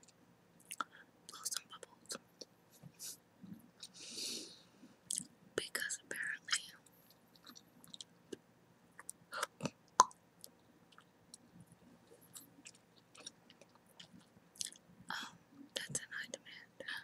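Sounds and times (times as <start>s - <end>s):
gum chewing mouth clicks: 7.3s - 8.4s.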